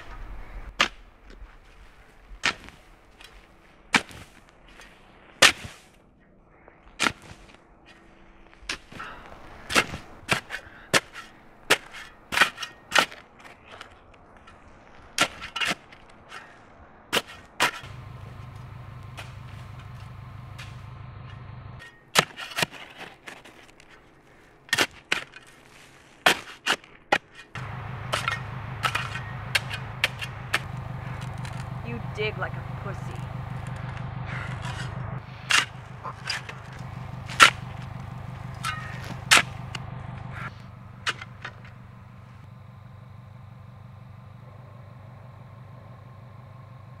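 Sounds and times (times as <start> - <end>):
shovel digging into soil: 2.4 - 6.0, 7.0 - 7.6, 8.7 - 13.9, 24.7 - 31.7, 33.6 - 41.7
low steady hum: 17.8 - 22.0, 27.6 - 47.0.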